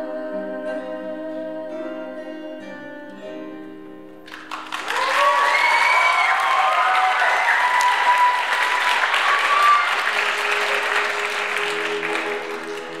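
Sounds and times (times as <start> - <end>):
audience applauding and cheering: 4.3 - 13.0.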